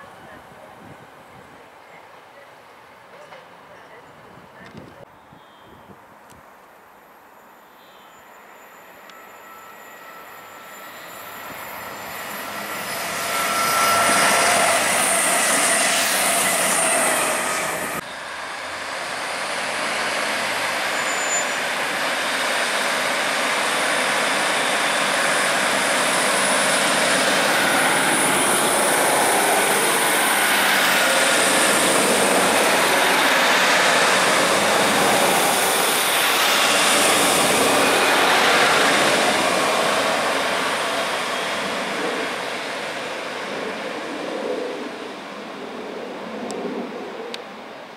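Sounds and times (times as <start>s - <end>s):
train engine and wheel noise: 0.0s - 5.3s, 5.9s - 47.9s
diesel train approaching: 7.4s - 45.6s
high wheel squeal: 7.9s - 18.1s, 19.4s - 41.6s.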